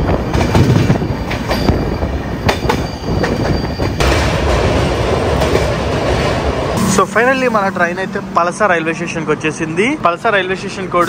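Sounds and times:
faint high wheel squeal: 0.0 - 4.0
train wheel-on-rail rumble: 0.0 - 11.0.

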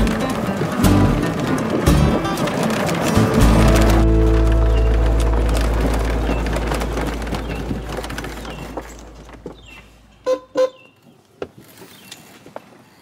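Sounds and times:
horn toots: 3.2 - 9.5
low hum: 3.2 - 10.3.

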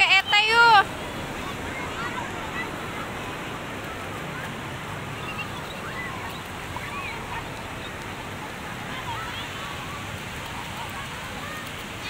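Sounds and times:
faint distant voices: 0.0 - 12.0
surf breaking on beach: 0.0 - 12.0.

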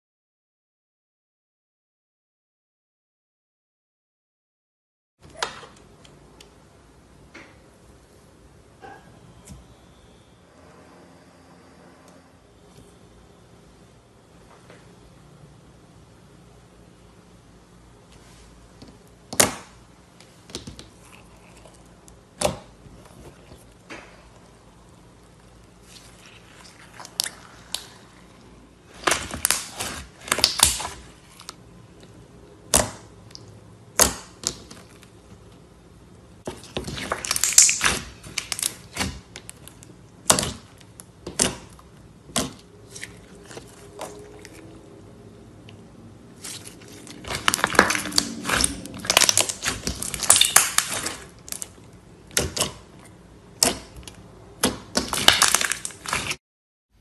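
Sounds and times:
slime popping and squelching: 25.8 - 31.6, 36.5 - 44.7, 46.4 - 56.4.

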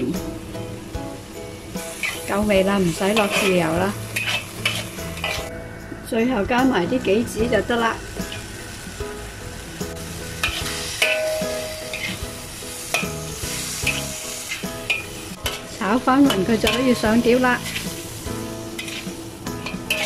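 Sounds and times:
soft background music: 0.0 - 20.0
steady sizzle: 0.0 - 20.0
metal spatula scraping wok: 1.7 - 5.5, 8.1 - 8.8, 9.9 - 20.0.

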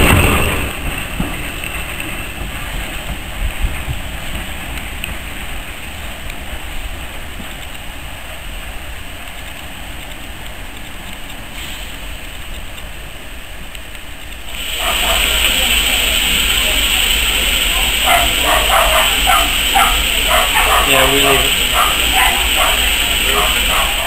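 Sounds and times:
steam locomotive hissing: 0.0 - 13.7, 14.3 - 24.0
steady rain: 0.0 - 24.0.

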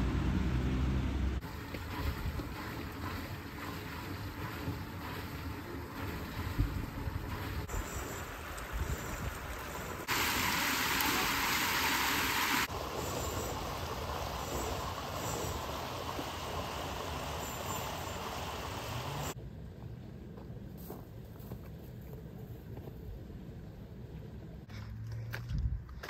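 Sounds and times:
water rushing down a channel: 1.4 - 19.4.

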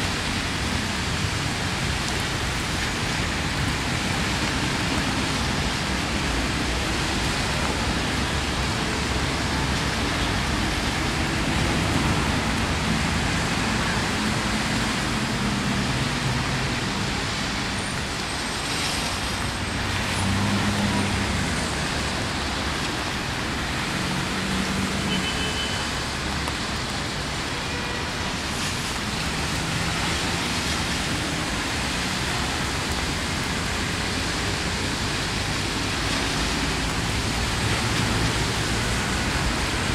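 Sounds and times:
rain hissing: 0.0 - 39.9
passing vehicles humming: 0.1 - 25.2.

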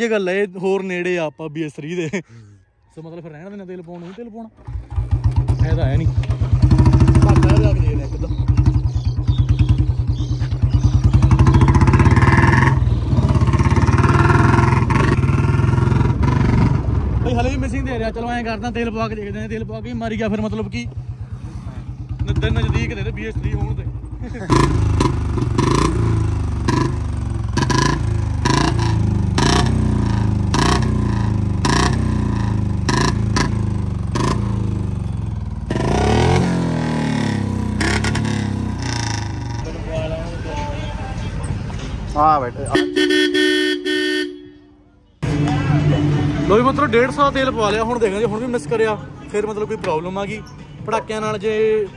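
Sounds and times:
motorcycle engine accelerating: 4.6 - 39.8, 45.2 - 48.3.

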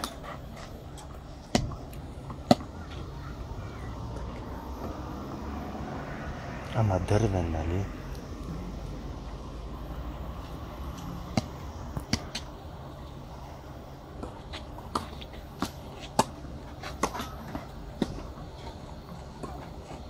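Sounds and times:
low outdoor background: 0.0 - 20.0.

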